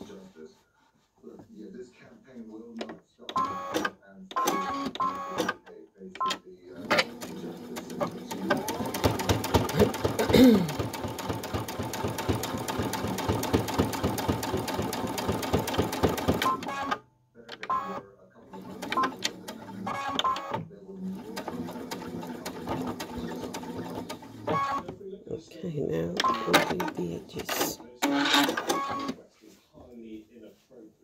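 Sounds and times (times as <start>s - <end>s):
sewing machine stitching: 2.8s - 5.6s, 6.2s - 17.0s, 17.6s - 25.0s, 26.2s - 29.2s.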